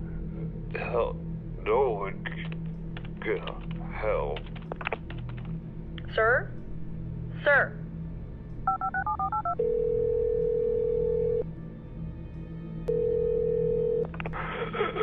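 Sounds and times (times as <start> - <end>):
phone line tone: 8.7 - 11.4, 12.9 - 14.1
telephone keypad beeps: 8.7 - 11.4.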